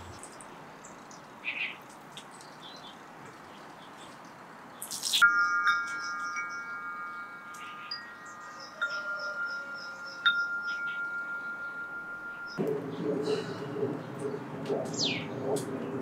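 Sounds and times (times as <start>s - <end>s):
metal wind chime ringing: 5.2s - 12.6s.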